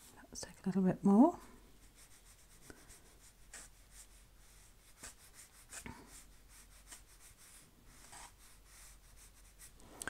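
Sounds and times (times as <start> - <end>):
paintbrush swishing on paper: 1.7 - 9.9.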